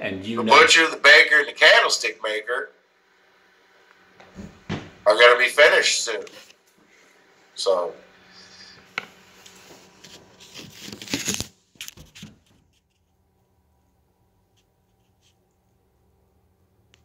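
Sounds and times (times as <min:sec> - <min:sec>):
phone handling noise rustling: 0:10.0 - 0:12.6.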